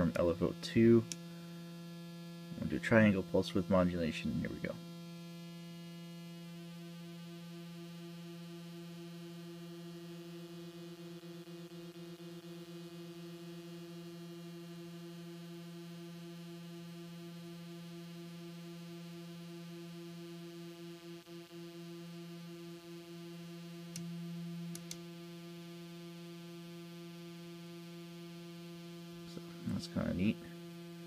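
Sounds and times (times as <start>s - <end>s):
synthesizer low drone: 23.2s - 26.8s
sharp clicks: 24.7s - 25.0s.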